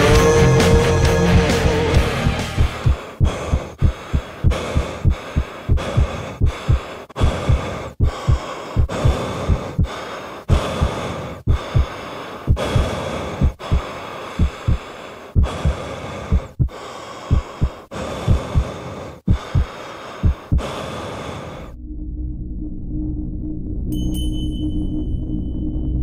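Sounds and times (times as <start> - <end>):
heartbeat-like low thumps: 0.2 - 9.9, 10.5 - 11.9, 12.5 - 20.7.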